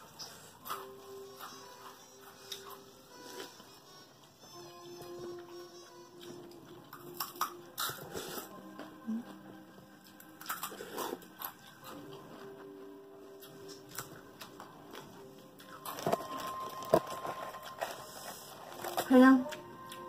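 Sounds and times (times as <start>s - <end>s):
soft background music: 0.0s - 20.0s
noodles slurped and chewed: 6.2s - 9.4s, 10.0s - 12.6s.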